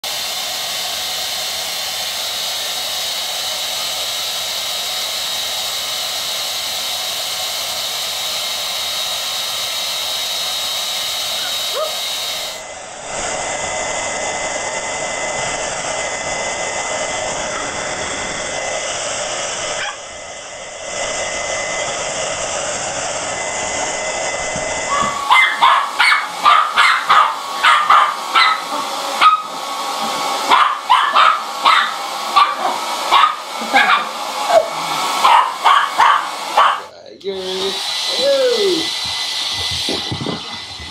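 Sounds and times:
hair dryer blowing: 0.0 - 40.9
small dog barking: 11.4 - 12.1, 19.8 - 20.1, 24.9 - 29.8, 30.4 - 36.9.

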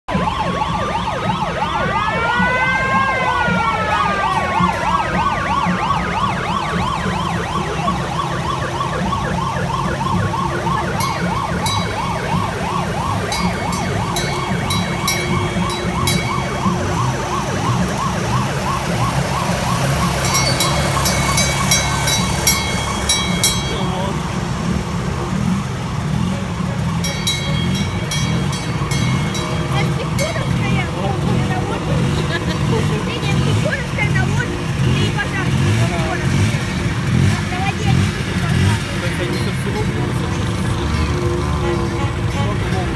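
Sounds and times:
electronic siren yelping: 0.1 - 24.2, 27.1 - 36.3
small engines running: 0.9 - 42.9.

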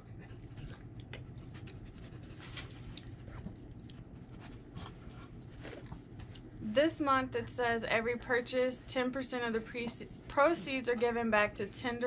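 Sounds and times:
dog panting: 0.0 - 5.5.

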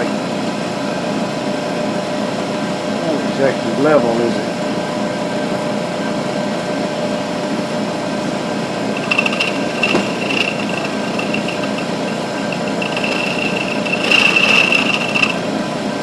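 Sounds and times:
high-pitched cutting squeal: 9.0 - 15.5
milling machine hum: 9.0 - 15.5.

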